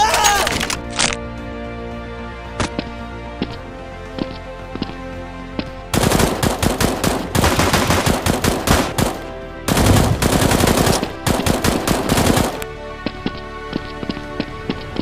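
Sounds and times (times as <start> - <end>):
machine-gun fire: 5.9 - 12.6.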